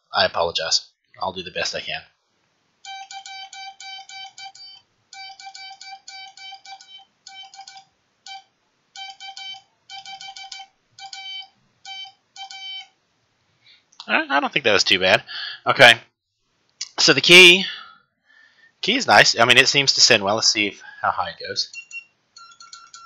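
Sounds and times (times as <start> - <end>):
morse code oscillator beeping: 2.9 - 12.9, 21.7 - 23.0.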